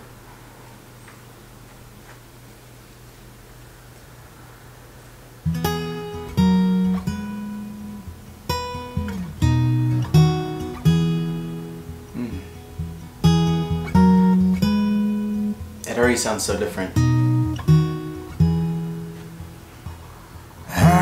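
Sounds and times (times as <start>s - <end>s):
solo guitar playing: 5.4s - 21.0s.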